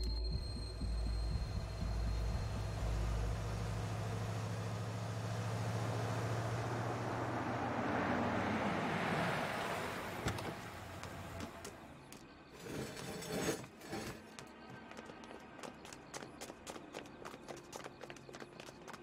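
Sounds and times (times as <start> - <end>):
truck driving past: 0.6 - 11.9.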